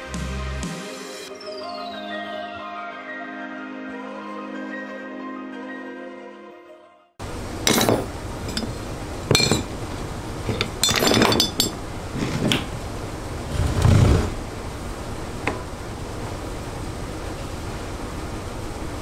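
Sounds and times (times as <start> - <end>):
metal tools clinking on workbench: 7.6 - 9.8, 10.4 - 12.7.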